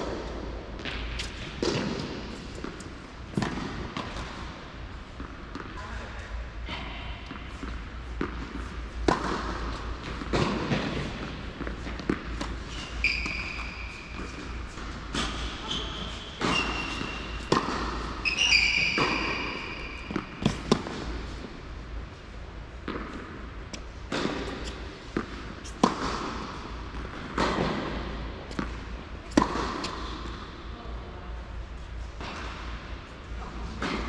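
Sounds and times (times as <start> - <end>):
tennis ball struck by rackets: 0.0 - 4.5, 7.6 - 21.4, 22.8 - 30.5
sneakers squeaking: 7.5 - 21.6, 22.7 - 30.4.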